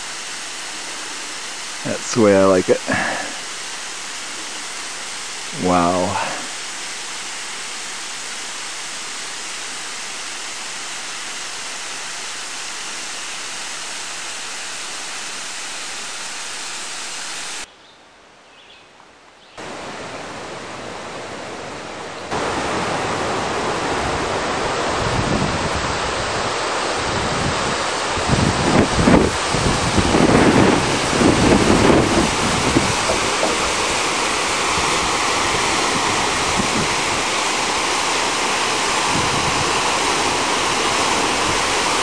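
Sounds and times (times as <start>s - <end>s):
steady rushing noise: 0.0s - 17.7s, 19.6s - 42.0s
wind buffeting microphone: 22.4s - 42.0s.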